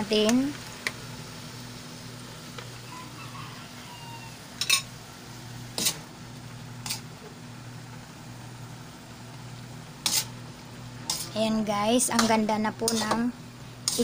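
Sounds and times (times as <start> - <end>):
steady low hum: 4.4 - 14.0.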